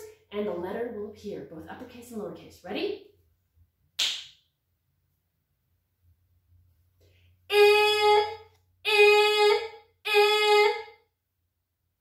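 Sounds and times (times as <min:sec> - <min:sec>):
woman sounding drawn-out vowel: 0:07.5 - 0:11.0.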